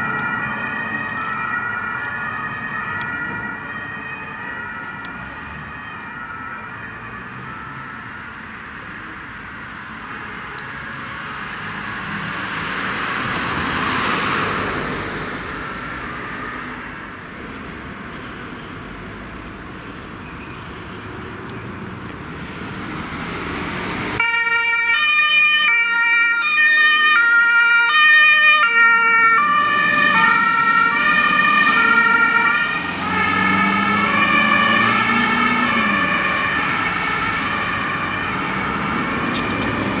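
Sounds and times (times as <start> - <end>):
two-tone siren: 0.0 - 8.5, 24.2 - 39.4
traffic: 0.0 - 40.0
heavy truck passing: 10.0 - 40.0.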